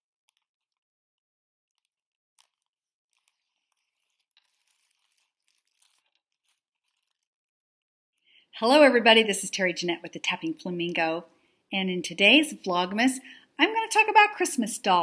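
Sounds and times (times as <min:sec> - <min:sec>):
tissue paper crinkling: 0:01.8 - 0:07.3.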